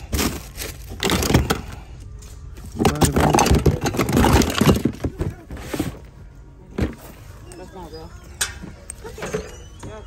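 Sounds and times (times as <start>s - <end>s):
plastic toys clattering: 0.0s - 1.8s, 2.5s - 6.1s.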